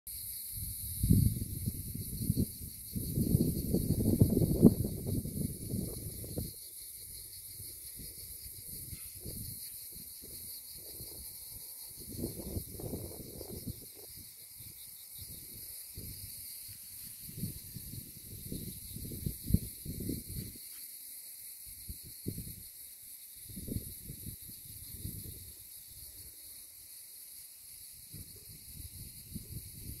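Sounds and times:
high insect chorus buzzing: 0:00.1 - 0:30.0
wind buffeting microphone: 0:00.6 - 0:20.6, 0:23.5 - 0:25.6, 0:28.1 - 0:30.0.

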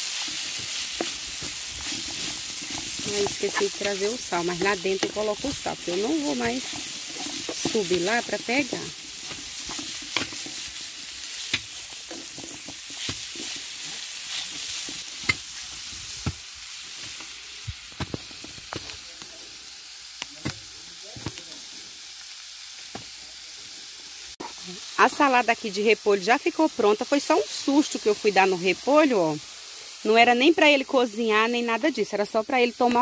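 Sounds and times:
utensil scraping pan: 0:00.0 - 0:16.4
vegetables sizzling in frying pan: 0:00.0 - 0:33.0.

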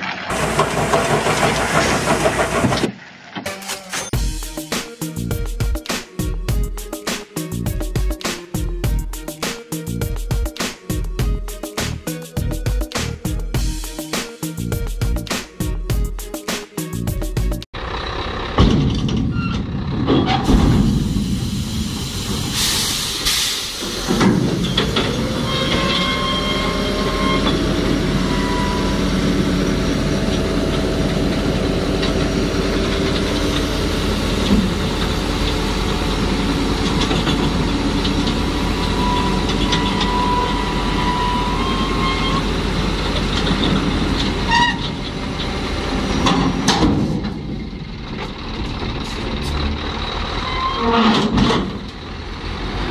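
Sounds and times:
truck diesel engine running: 0:00.0 - 0:02.8, 0:17.4 - 0:51.1, 0:51.7 - 0:52.9
air hiss: 0:20.8 - 0:24.2.

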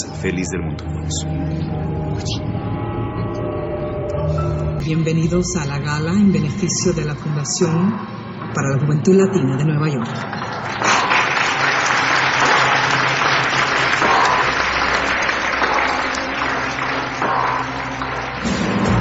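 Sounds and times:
audience applauding: 0:10.1 - 0:19.0.

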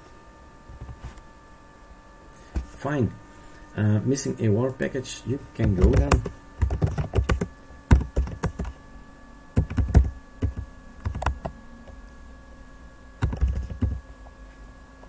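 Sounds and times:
faint laptop fan hum: 0:00.0 - 0:15.0
laptop keyboard typing: 0:05.6 - 0:08.8, 0:09.6 - 0:11.6, 0:13.2 - 0:14.0.

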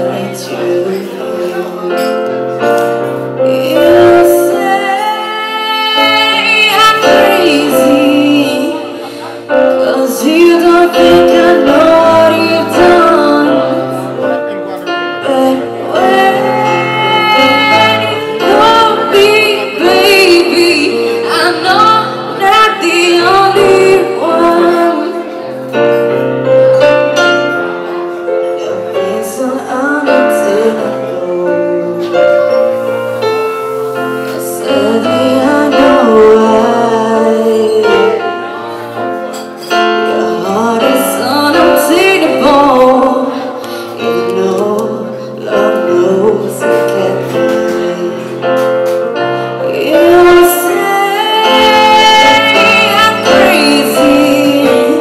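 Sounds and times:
live band playing r and b song: 0:00.0 - 0:55.0.

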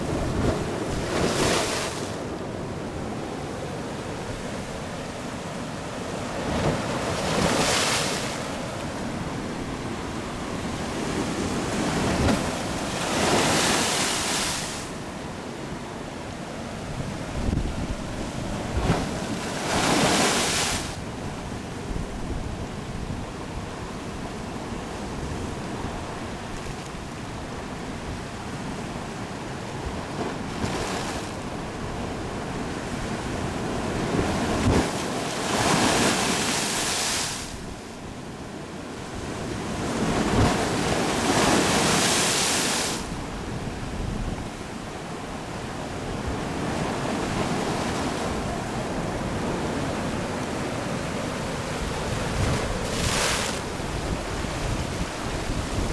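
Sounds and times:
surf washing over rocks: 0:00.0 - 0:15.1, 0:17.2 - 0:21.2, 0:30.3 - 0:37.9, 0:39.1 - 0:55.9.

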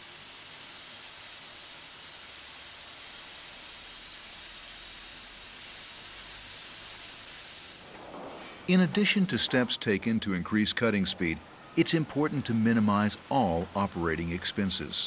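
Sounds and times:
cutting torches hissing: 0:00.0 - 0:08.1.

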